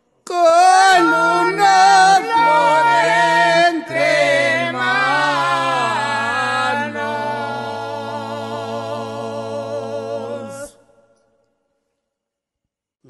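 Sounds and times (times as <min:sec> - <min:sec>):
person singing slow song: 0:00.2 - 0:11.0.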